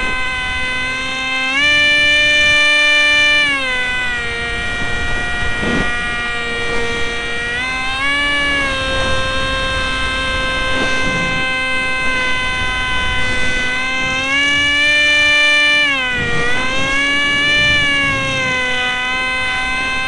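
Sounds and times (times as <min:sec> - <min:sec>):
electric motor whining: 0:00.0 - 0:20.0
wind rush: 0:03.9 - 0:14.8.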